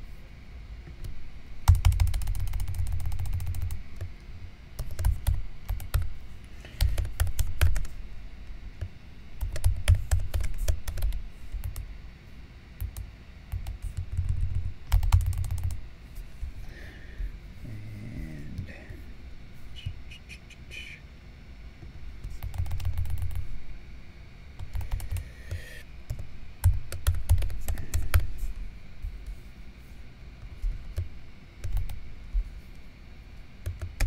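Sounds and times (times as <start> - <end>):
computer keyboard typing: 1.6 - 4.1, 4.8 - 6.1, 6.8 - 7.9, 9.4 - 11.8, 12.8 - 15.8, 22.2 - 23.4, 24.6 - 28.3, 31.6 - 32.0, 33.6 - 34.0.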